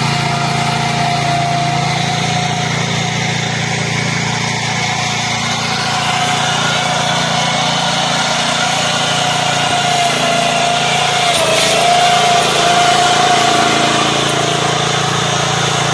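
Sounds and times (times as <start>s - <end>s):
mower engine running under load: 0.0s - 15.9s
steady whine: 4.6s - 15.9s.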